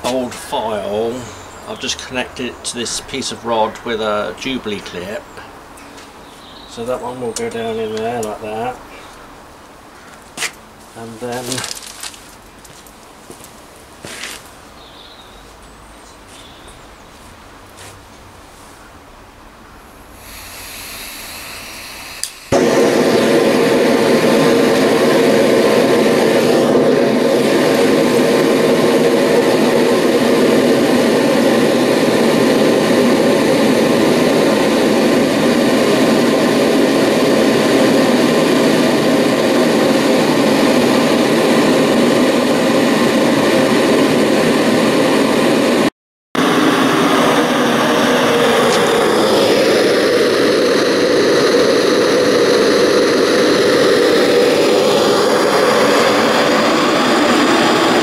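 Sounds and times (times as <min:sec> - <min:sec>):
gas burner roaring: 0:00.0 - 0:09.5, 0:10.7 - 0:15.1, 0:19.6 - 0:58.0
gas hissing: 0:19.9 - 0:58.0
torch ignition click: 0:20.2 - 0:25.2, 0:26.0 - 0:28.7.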